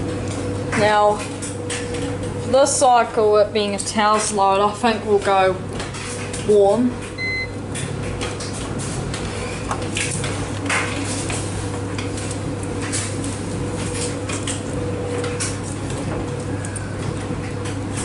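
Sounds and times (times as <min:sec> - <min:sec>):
washing machine hum: 0:00.0 - 0:18.0
electronic button beep: 0:07.2 - 0:07.6.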